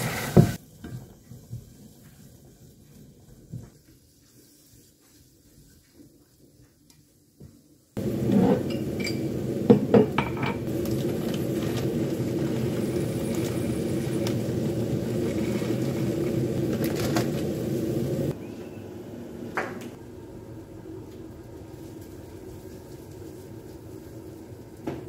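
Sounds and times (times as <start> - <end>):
pots and utensils clinking: 8.0 - 14.4
steady hum: 8.0 - 21.8.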